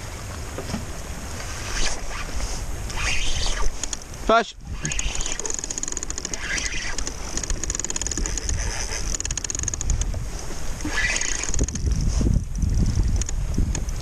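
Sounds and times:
wind buffeting microphone: 0.8s - 14.0s
water slapping plastic hull: 4.7s - 14.0s.

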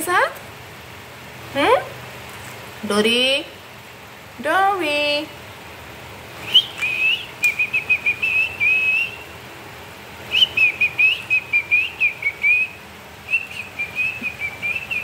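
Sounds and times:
rapid warbling whistling: 6.4s - 9.4s, 10.3s - 15.0s.

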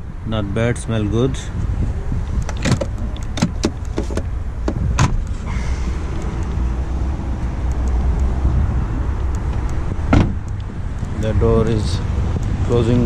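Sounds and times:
steady low rumble: 0.0s - 13.0s
car door latch clicks and knocks: 2.4s - 5.4s, 9.5s - 10.8s.

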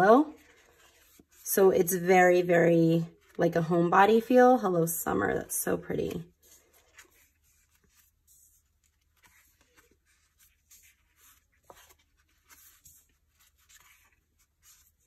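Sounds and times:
paper sticker sheets rustling: 0.0s - 1.4s, 6.0s - 15.0s.

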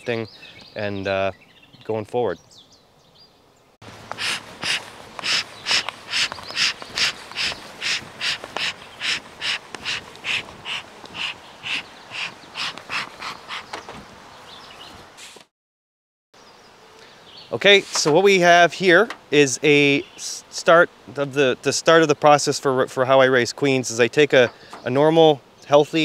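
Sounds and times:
footsteps swishing through tall grass: 4.0s - 11.4s.

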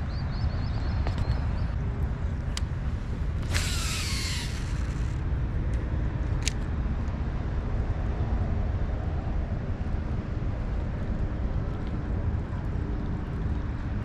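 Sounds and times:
wind rumble on microphone: 0.0s - 14.0s
sharp click: 3.4s - 5.2s.

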